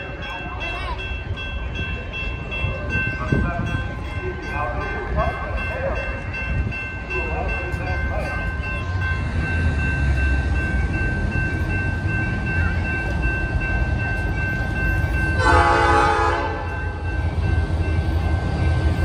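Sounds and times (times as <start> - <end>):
diesel locomotive engine running: 0.0 - 19.0
air horn blast: 15.4 - 16.7.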